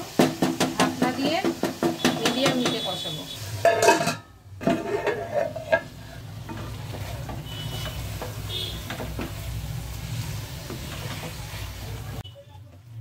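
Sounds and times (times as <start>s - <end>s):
meat frying in a pan: 0.0s - 12.2s
wooden spatula scraping a pan: 3.6s - 12.2s.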